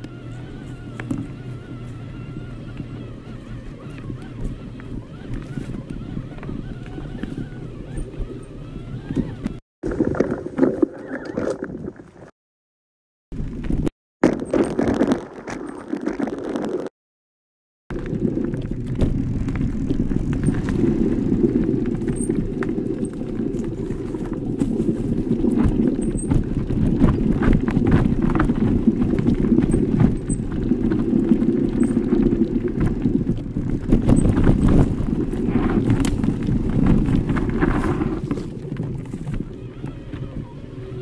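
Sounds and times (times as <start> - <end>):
bike tyres rumbling on dirt: 0.0 - 12.3, 13.4 - 16.9, 17.9 - 41.0
bike clattering over bumps: 17.9 - 39.6.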